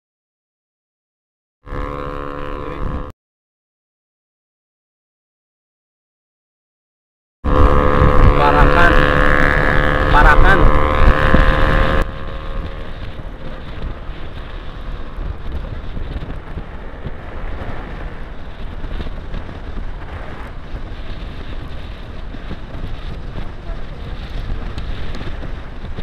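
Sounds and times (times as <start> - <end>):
wind rumbling on microphone: 1.7 - 3.1, 7.5 - 26.0
loud sound with pitched tones: 7.5 - 13.6
scooter engine and tyre noise: 7.5 - 26.0.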